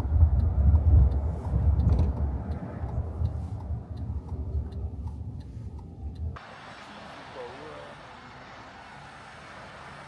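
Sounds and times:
car interior rumble: 0.0s - 10.0s
faint regular ticks: 0.1s - 6.4s.

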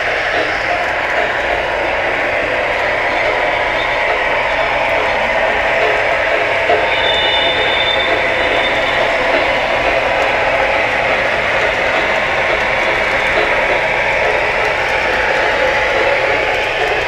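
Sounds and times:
model train wheels clattering: 0.0s - 17.0s.

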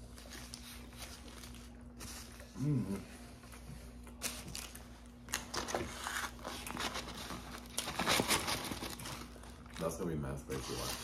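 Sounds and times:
paper wrappers crinkling: 4.1s - 11.0s.

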